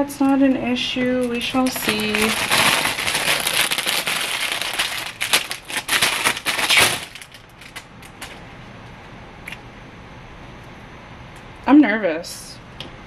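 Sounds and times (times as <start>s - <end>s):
plastic bag crinkling: 1.2s - 8.4s.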